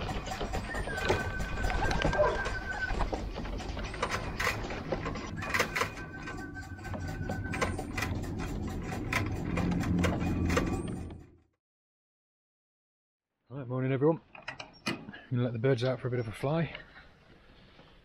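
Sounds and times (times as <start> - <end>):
low hum: 0.0 - 11.5.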